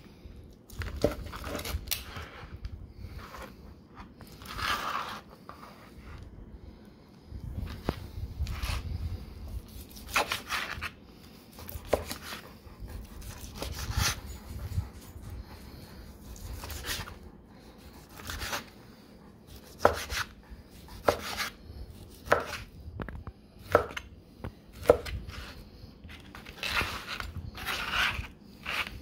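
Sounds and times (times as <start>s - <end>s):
knife slicing steak: 9.6s - 14.3s, 16.2s - 17.2s, 17.8s - 18.8s, 19.5s - 22.7s, 23.6s - 24.1s, 24.7s - 29.0s.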